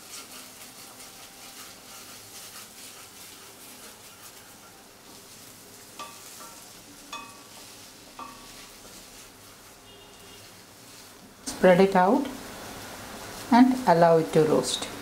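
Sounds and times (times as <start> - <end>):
spatula scraping pan: 0.0 - 11.8
vegetables sizzling in oil: 0.0 - 15.0
spatula knocking on pan: 6.0 - 8.5.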